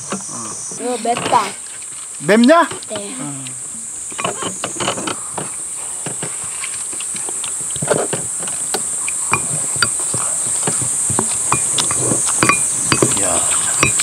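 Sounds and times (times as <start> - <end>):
high-pitched insect drone: 0.0 - 14.0
chewing: 1.4 - 14.0
utensils clicking on bowls: 6.9 - 14.0.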